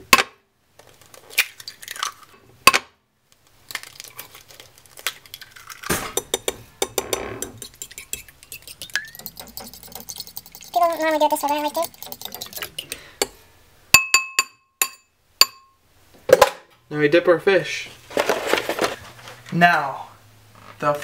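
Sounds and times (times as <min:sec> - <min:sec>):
eggs cracked on bowl rim: 0:01.3 - 0:02.8, 0:03.7 - 0:07.0, 0:07.6 - 0:10.8, 0:11.6 - 0:13.3
fork beating eggs in bowl: 0:05.6 - 0:13.4.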